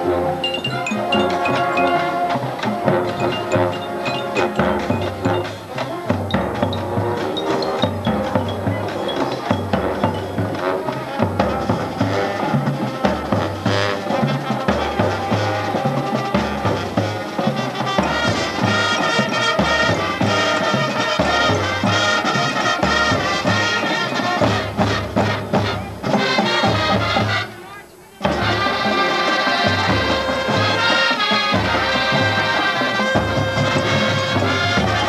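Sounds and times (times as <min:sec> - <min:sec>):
brass horns and sousaphones: 0:00.0 - 0:35.0
bass drum beat: 0:02.8 - 0:07.2.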